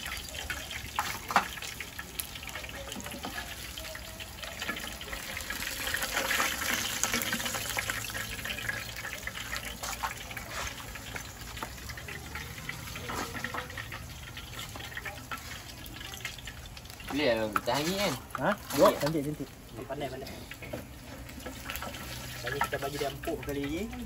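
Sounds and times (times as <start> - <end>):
water running from a tap: 0.0 - 20.2, 20.9 - 24.0.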